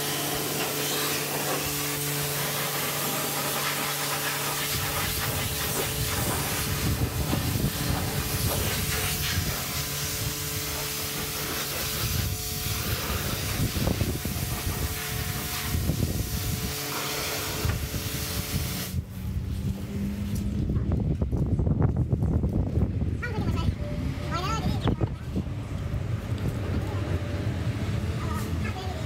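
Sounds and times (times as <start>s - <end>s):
pressure washer spraying water: 0.0s - 20.4s.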